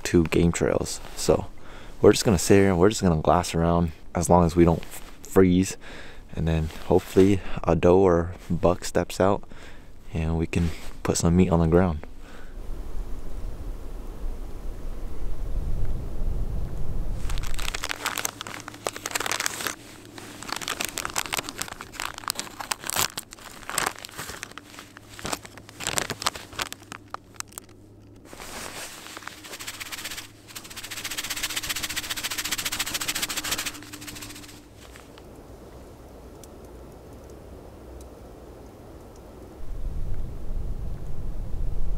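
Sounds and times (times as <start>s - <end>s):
crinkling close to microphone: 4.5s - 5.3s, 6.4s - 7.4s, 17.2s - 35.8s
steady hiss: 28.3s - 41.5s.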